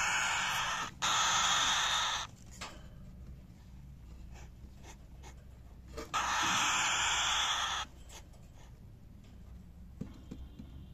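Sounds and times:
bird chick hissing: 0:00.0 - 0:02.3, 0:06.1 - 0:07.9.

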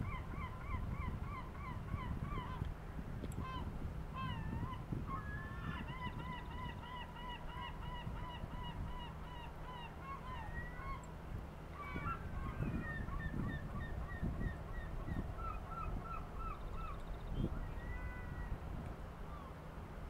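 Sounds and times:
gull calling: 0:04.2 - 0:11.0, 0:11.8 - 0:17.0, 0:17.6 - 0:18.6.

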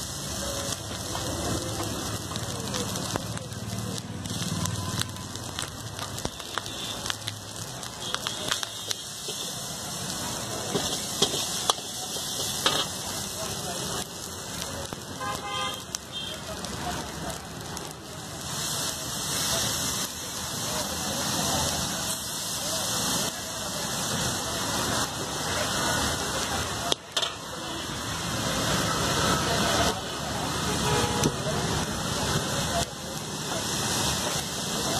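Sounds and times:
food sizzling in a wok: 0:00.0 - 0:34.9
metal ladle scraping a wok: 0:10.7 - 0:13.0.

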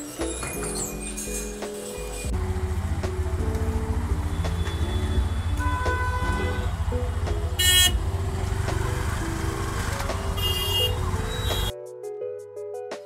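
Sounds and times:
engine rumble of traffic: 0:02.2 - 0:11.7
vehicle horn honks: 0:04.3 - 0:06.8, 0:07.5 - 0:08.0, 0:10.3 - 0:11.7.

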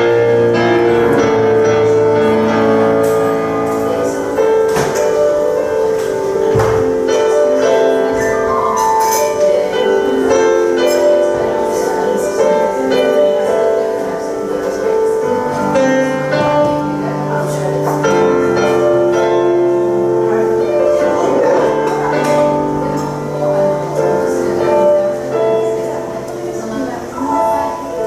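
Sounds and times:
grand piano improvisation: 0:00.0 - 0:28.0.

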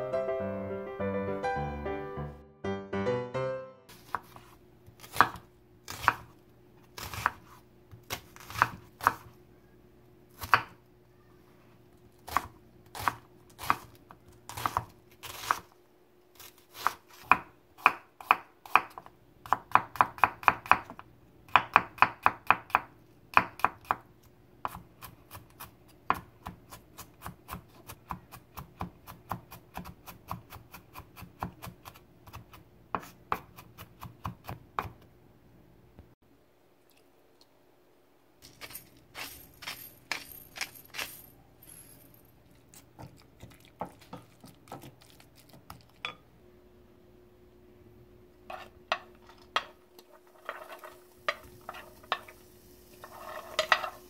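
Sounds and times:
knife chopping on wooden board: 0:05.0 - 0:06.3, 0:07.0 - 0:07.5, 0:14.5 - 0:15.6, 0:24.6 - 0:35.0.

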